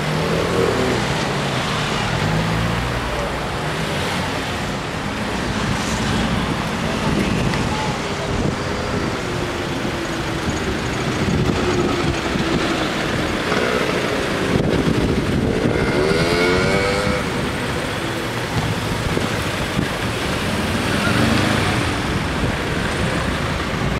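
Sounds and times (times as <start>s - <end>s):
cars driving past: 0.0s - 23.9s
scooter engine revving: 10.4s - 23.4s.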